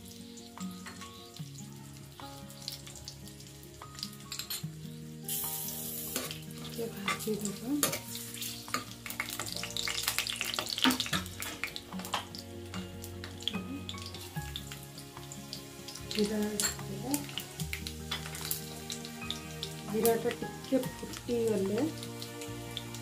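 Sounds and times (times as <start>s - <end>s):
soft instrumental music: 0.0s - 23.0s
spices sizzling in hot oil: 0.0s - 23.0s
spoon stirring in pan: 6.2s - 22.9s.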